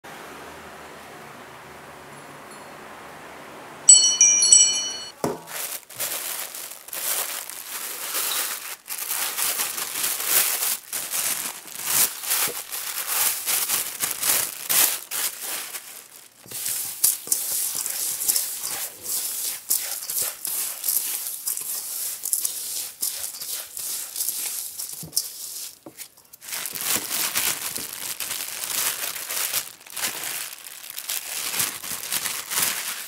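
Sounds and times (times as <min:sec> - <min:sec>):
bright high chime: 0:02.5 - 0:02.9, 0:03.9 - 0:05.2
plastic bag crinkling: 0:05.2 - 0:33.0
food tossed in steel bowl: 0:07.0 - 0:30.4.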